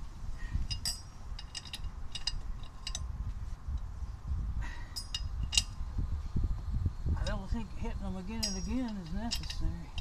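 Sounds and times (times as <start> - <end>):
metal socket clinking on lug nuts: 8.4 - 10.0.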